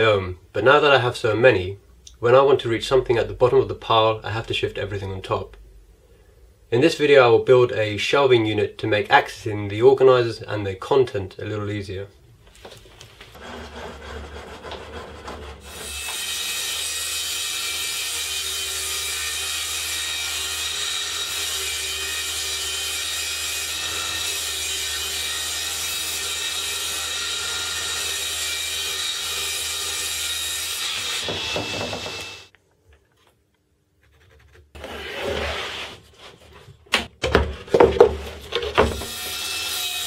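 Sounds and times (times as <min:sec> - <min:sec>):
table saw cutting plywood: 0:13.3 - 0:32.5, 0:34.8 - 0:36.1, 0:38.8 - 0:40.0.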